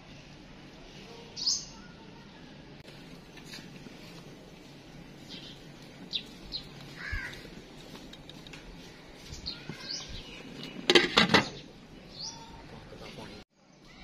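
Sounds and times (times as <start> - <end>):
birds chirping: 1.3 - 2.0, 5.1 - 8.2, 8.8 - 14.0.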